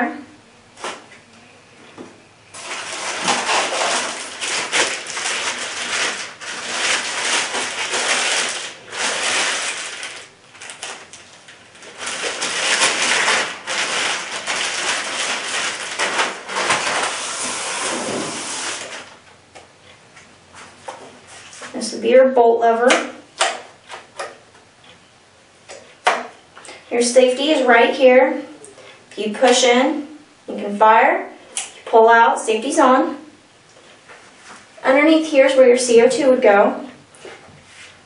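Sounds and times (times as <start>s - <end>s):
plastic wrapping crinkling: 2.6s - 19.2s.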